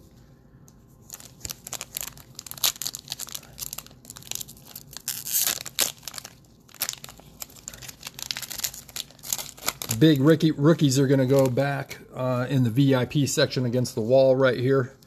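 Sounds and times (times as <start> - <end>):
packaging crinkling and tearing: 1.0 - 11.6
packaging ripping: 1.1 - 10.3.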